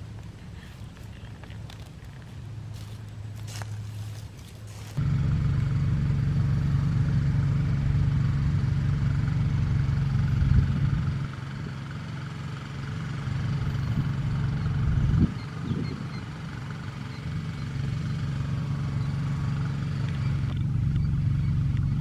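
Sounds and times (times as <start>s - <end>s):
motor engine humming: 0.0s - 22.0s.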